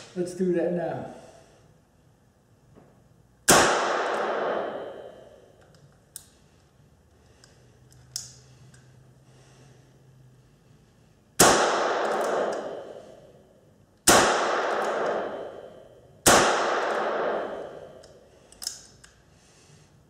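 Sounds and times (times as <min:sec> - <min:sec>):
revolver shots echoing indoors: 0:02.6 - 0:06.4, 0:11.2 - 0:19.3.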